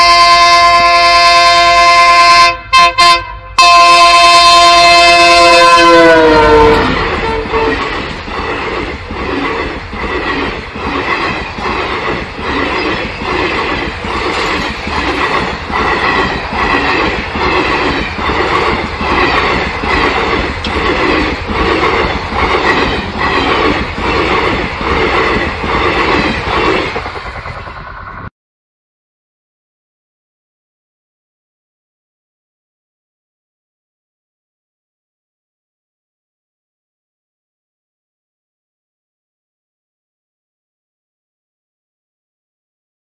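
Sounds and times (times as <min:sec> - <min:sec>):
train horn blast: 0:00.0 - 0:08.0
train wheels clattering over rails: 0:06.6 - 0:28.3.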